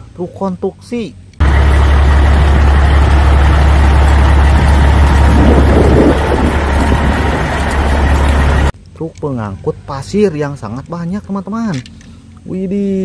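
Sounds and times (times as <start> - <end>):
truck engine running: 1.4 - 8.8.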